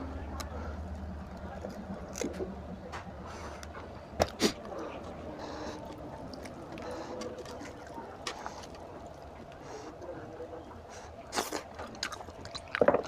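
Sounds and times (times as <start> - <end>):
wet squelching of meat: 4.2 - 10.2.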